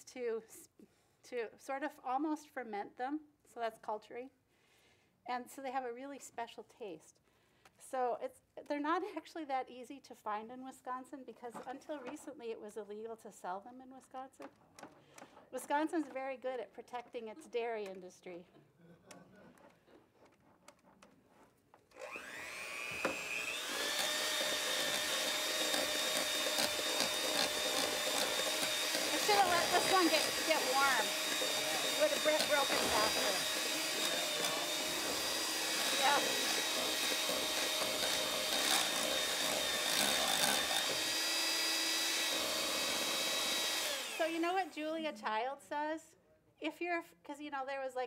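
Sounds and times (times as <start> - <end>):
electric hand mixer whirring: 21.9 - 44.7
beaters whipping cream: 22.0 - 44.5.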